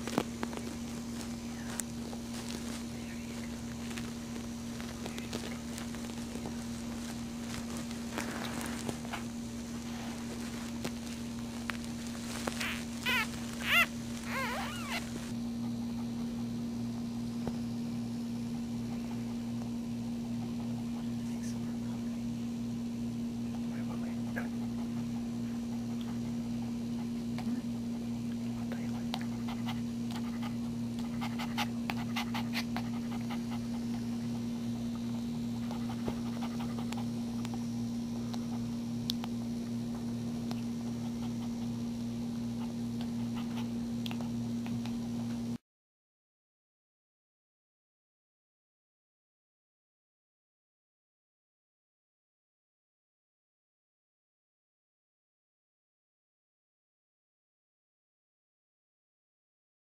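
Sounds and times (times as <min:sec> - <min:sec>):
dog panting: 0:00.0 - 0:16.4, 0:18.8 - 0:21.6, 0:23.9 - 0:39.2, 0:40.0 - 0:45.4
steady low hum: 0:00.0 - 0:45.6
puppy squeaking: 0:12.1 - 0:15.3
nursing puppy clicks: 0:28.3 - 0:29.3, 0:35.7 - 0:37.6, 0:38.3 - 0:39.8, 0:40.4 - 0:40.7, 0:43.0 - 0:45.4.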